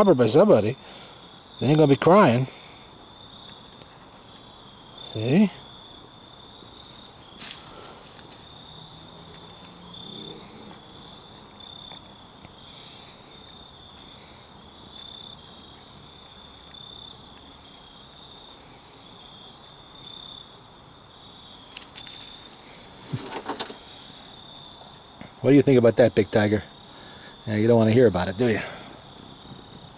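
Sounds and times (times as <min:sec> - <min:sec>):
cricket trilling: 0:00.0 - 0:29.9
dry leaves rustling: 0:07.1 - 0:09.9, 0:21.6 - 0:23.8.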